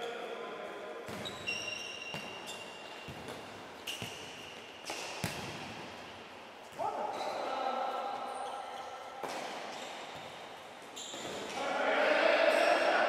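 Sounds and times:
ball kicked and bouncing indoors: 0:01.0 - 0:06.8, 0:09.2 - 0:10.5.

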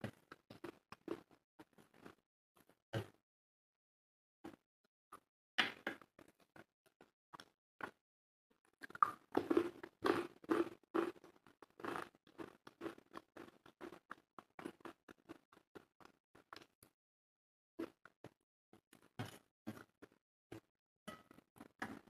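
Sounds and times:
person chewing crunchy food: 0:00.1 - 0:02.2, 0:08.6 - 0:16.8.

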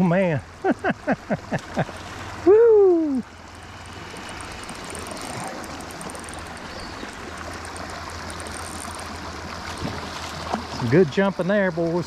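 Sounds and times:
creek water rushing: 0:00.0 - 0:12.0
faint high ticking: 0:02.7 - 0:10.6.

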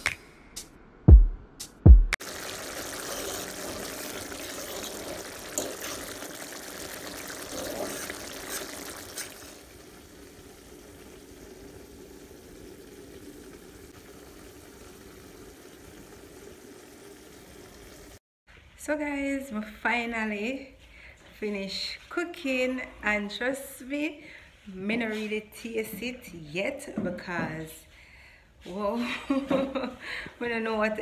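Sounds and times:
water trickling and pouring: 0:02.2 - 0:18.2.

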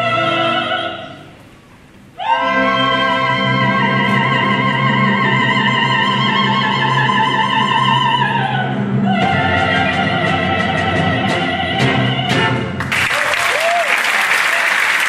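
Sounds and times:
soprano singing opera: 0:00.0 - 0:01.4, 0:02.2 - 0:12.7
orchestra playing: 0:02.2 - 0:13.0
audience applause: 0:12.8 - 0:15.0.

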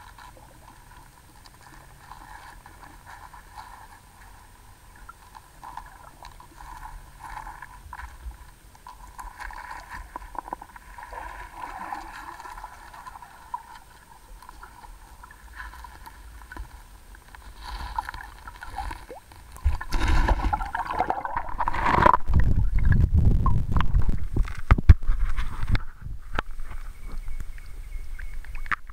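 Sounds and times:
muffled underwater gurgle: 0:00.0 - 0:28.9
water sloshing and knocking: 0:17.7 - 0:27.3.

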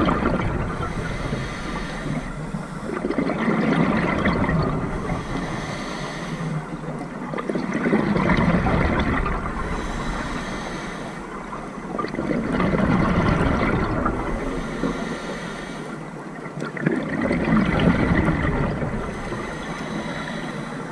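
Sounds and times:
gurgling exhaled bubbles: 0:00.0 - 0:15.4, 0:16.2 - 0:20.1
regulator hissing inhale: 0:00.8 - 0:03.1, 0:04.9 - 0:07.0, 0:09.6 - 0:11.7, 0:14.1 - 0:16.2, 0:19.0 - 0:20.9.

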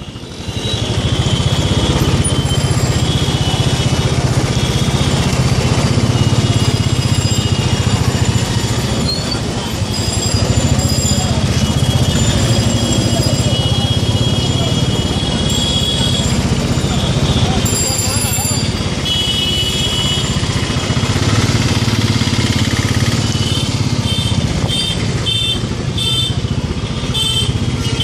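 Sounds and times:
short horn beeps: 0:09.0 - 0:20.4.

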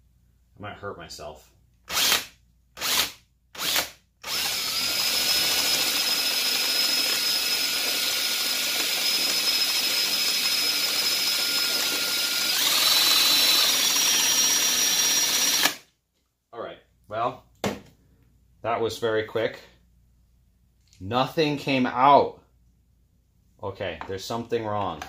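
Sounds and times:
power drill whining: 0:01.9 - 0:15.8.

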